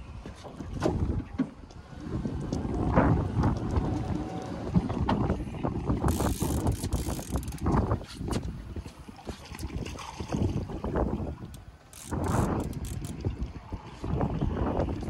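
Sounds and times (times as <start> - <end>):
wind buffeting microphone: 0.6 - 15.0
fishing reel clicking: 6.0 - 7.8, 11.4 - 13.3.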